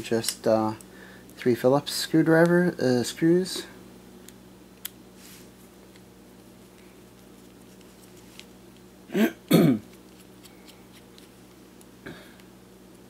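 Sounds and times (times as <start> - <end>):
man clearing his throat: 9.1 - 9.9.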